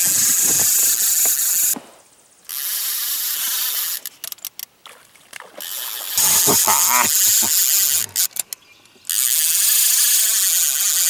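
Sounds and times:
fishing reel whirring and clicking: 0.0s - 1.8s, 2.5s - 4.7s, 5.6s - 8.5s, 9.1s - 11.0s.

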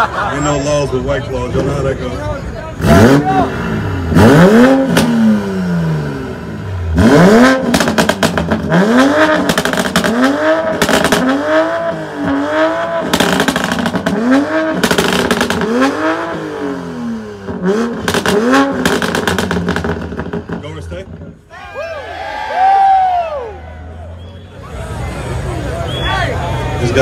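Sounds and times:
car exhaust revving: 2.7s - 21.4s.

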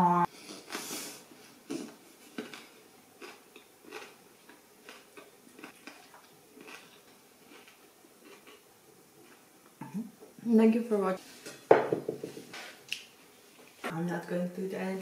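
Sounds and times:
person chewing food: 0.3s - 9.7s.

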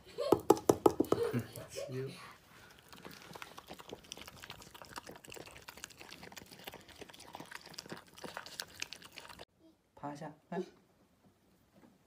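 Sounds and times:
puppy crunching dry kibble: 2.6s - 9.5s.

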